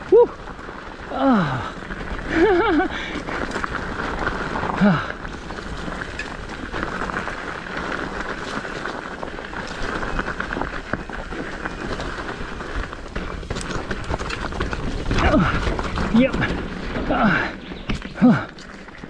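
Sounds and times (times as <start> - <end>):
bike tyres rolling on dirt: 0.0 - 19.0
bike clattering over bumps: 0.4 - 19.0.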